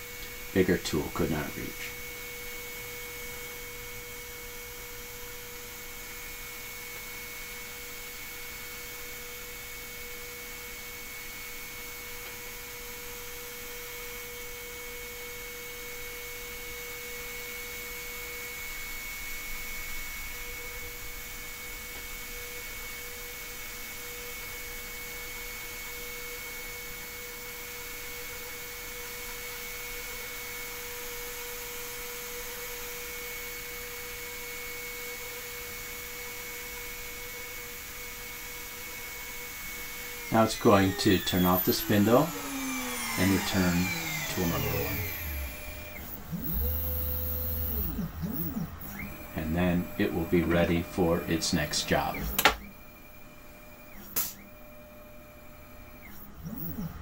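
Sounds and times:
router spindle whining: 0:00.0 - 0:57.0
machine motors moving: 0:39.2 - 0:57.0.

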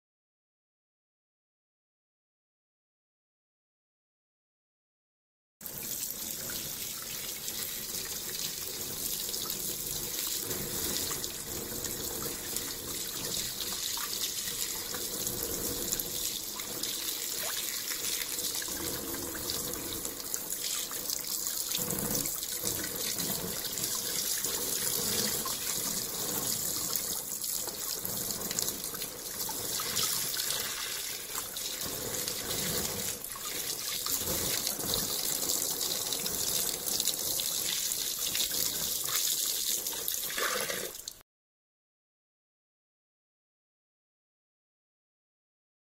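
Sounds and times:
water pouring into plastic tub: 0:05.7 - 0:41.2.

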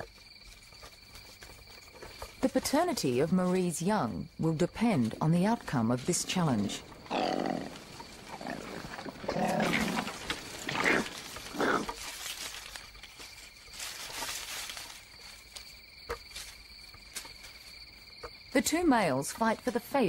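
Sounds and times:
high insect chirring: 0:00.0 - 0:20.0
koalas growling: 0:06.4 - 0:12.0.

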